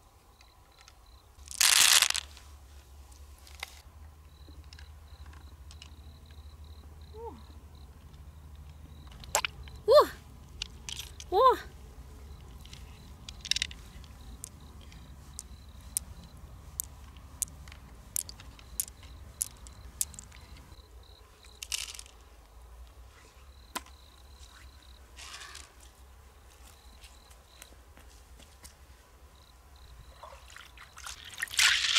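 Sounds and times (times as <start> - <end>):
shell rustling and scraping: 1.4 - 2.6, 12.3 - 20.8
pearls and shell clicking: 10.5 - 11.4, 12.3 - 20.8, 21.5 - 22.2.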